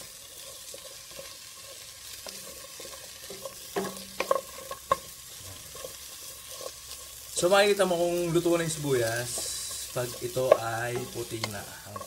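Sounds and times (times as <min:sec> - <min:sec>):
onion rings sizzling in a pan: 0:00.0 - 0:12.0
spatula knocking on pan: 0:03.3 - 0:05.1, 0:09.3 - 0:12.0.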